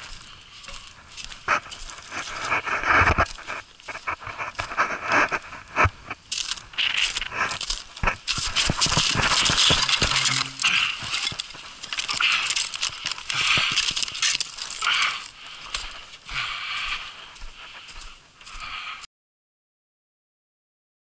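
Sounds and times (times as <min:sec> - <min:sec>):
footsteps crunching on icy snow: 0:00.0 - 0:19.1
bucket handle rattling: 0:08.9 - 0:12.1.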